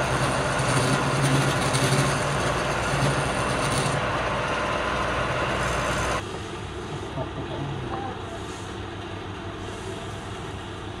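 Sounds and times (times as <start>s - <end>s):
scraper scraping spinning wood: 0.0s - 4.3s
lathe motor hum: 0.0s - 6.2s.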